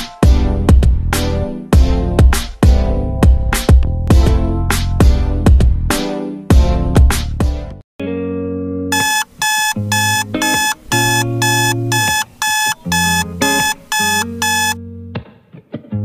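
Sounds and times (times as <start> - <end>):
high-pitched alarm beeps: 8.9 - 14.8.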